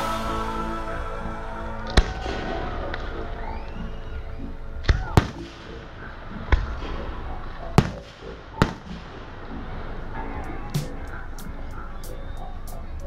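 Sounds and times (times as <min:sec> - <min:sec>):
fireworks bangs: 0:04.9 - 0:11.1.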